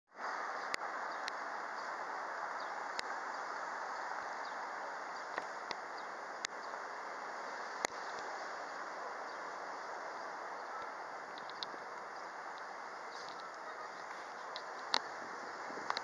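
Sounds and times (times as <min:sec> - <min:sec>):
outdoor background noise: 0:00.1 - 0:16.0.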